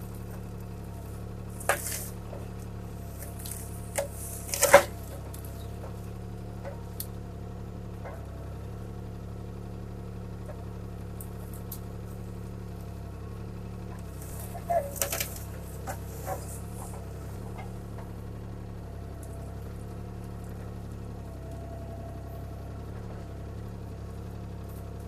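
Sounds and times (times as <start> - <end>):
diesel engine running: 0.0 - 25.0
wood cracking and snapping: 1.5 - 5.9, 14.0 - 17.1.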